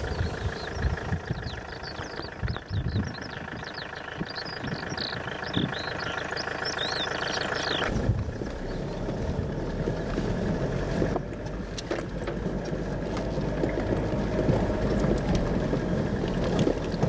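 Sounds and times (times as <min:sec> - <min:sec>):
car engine and tyre rumble: 0:00.0 - 0:17.0
car knocks and rattles over bumps: 0:07.8 - 0:17.0.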